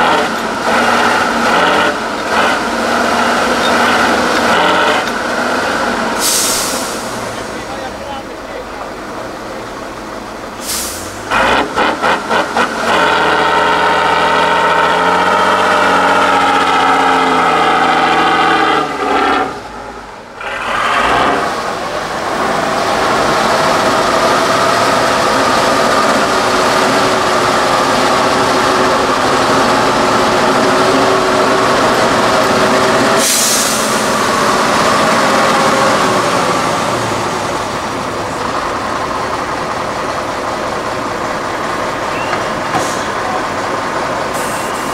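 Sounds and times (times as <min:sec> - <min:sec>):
truck diesel engine under load: 0:00.0 - 0:44.9
short sharp hiss: 0:06.2 - 0:07.2, 0:10.6 - 0:11.2.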